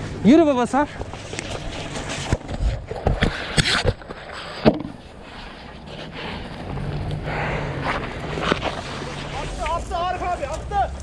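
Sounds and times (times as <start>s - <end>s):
footsteps crunching on pine needles: 0.0s - 2.6s, 7.9s - 11.0s
gloves brushing microphone: 0.0s - 7.2s, 7.8s - 10.6s
hose dragging and scuffing: 0.6s - 7.1s, 7.8s - 10.6s.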